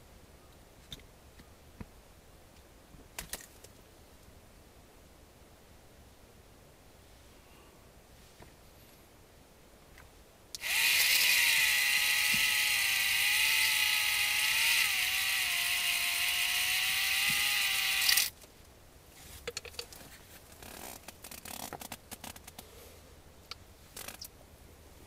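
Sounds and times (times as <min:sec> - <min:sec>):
electric fishing reel motor whining: 0:10.6 - 0:18.3
light clicks and rustles: 0:18.4 - 0:22.7.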